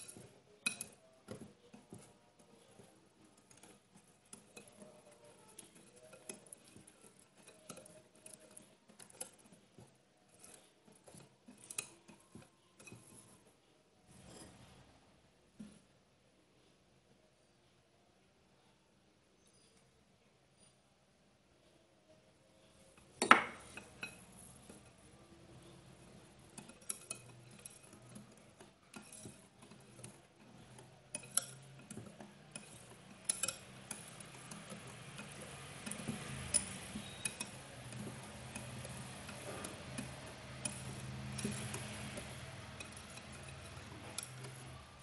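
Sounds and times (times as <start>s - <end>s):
whisk clinking in glass bowl: 0.0s - 13.4s, 23.2s - 45.0s.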